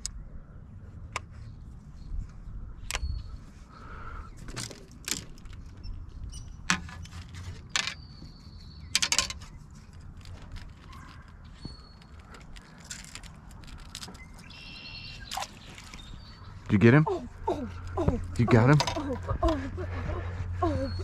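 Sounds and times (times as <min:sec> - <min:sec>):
low background rumble: 0:00.0 - 0:21.0
fishing tackle clicks and rattling: 0:04.5 - 0:05.8, 0:06.7 - 0:08.0, 0:08.9 - 0:11.4, 0:12.0 - 0:14.5, 0:18.3 - 0:19.3.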